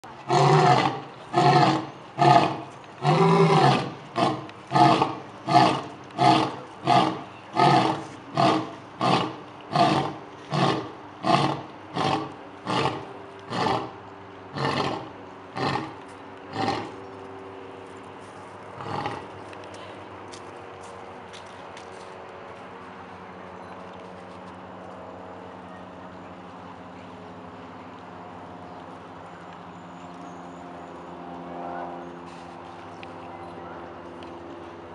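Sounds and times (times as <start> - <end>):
lion roaring: 0.2 - 13.9, 14.5 - 17.0, 18.8 - 19.2.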